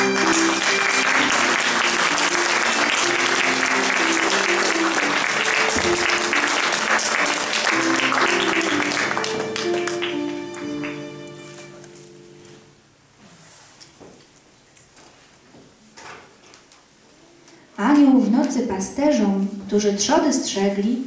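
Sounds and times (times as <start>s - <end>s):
audience applauding: 0.0s - 11.9s
violin held notes: 0.0s - 12.8s.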